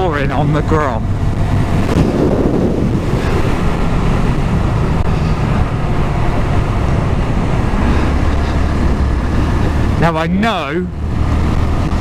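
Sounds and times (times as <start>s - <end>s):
wind rushing over microphone: 0.0s - 12.0s.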